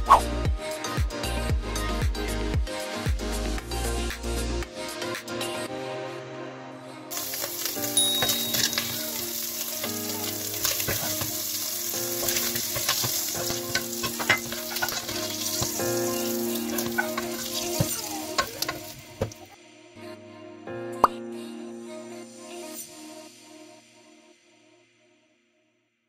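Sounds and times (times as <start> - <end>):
bacon sizzling in a pot: 7.1 - 19.4
wooden spoon scraping pot: 12.2 - 15.8.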